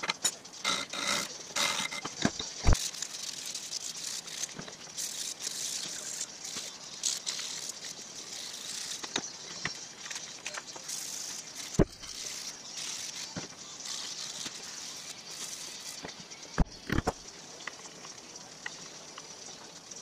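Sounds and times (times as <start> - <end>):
sandpaper scratching metal: 2.6 - 9.2, 9.9 - 16.1.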